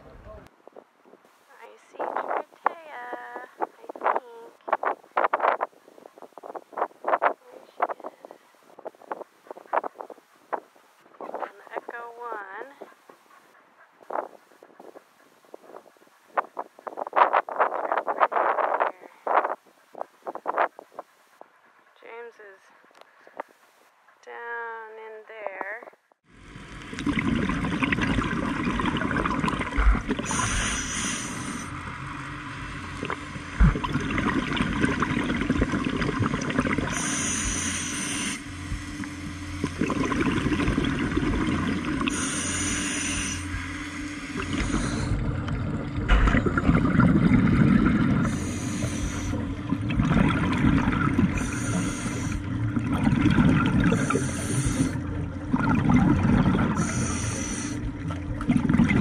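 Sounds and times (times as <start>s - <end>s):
bubbling exhalation: 26.9s - 31.7s, 33.0s - 38.4s, 39.6s - 43.5s, 44.2s - 59.0s
regulator hissing inhalation: 30.2s - 31.8s, 36.8s - 39.2s, 42.0s - 45.2s, 48.2s - 49.5s, 51.3s - 52.4s, 53.9s - 55.0s, 56.7s - 57.8s.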